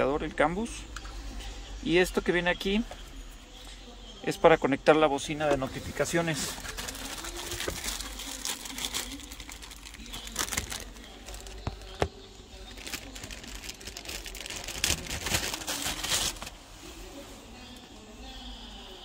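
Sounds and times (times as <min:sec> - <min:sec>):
plastic bag crinkling: 0:05.6 - 0:16.6.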